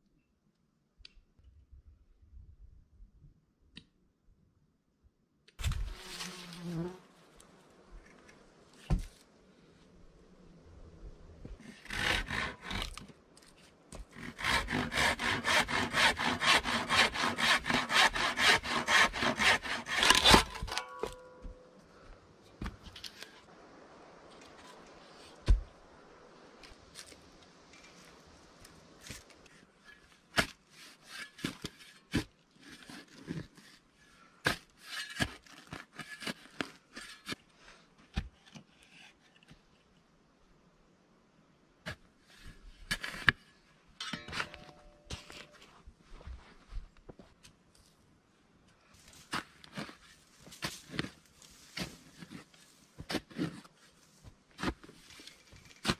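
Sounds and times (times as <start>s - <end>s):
knocks and scrapes of wood: 8.1s - 9.2s, 11.4s - 21.6s, 29.0s - 33.8s, 34.4s - 39.8s, 49.0s - 55.9s
handsaw cutting log: 11.6s - 13.0s, 14.1s - 20.8s.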